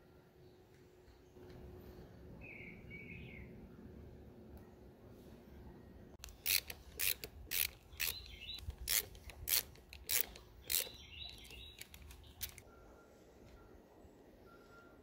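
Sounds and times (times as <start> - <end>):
screwdriver ratcheting clicks: 6.2 - 12.6.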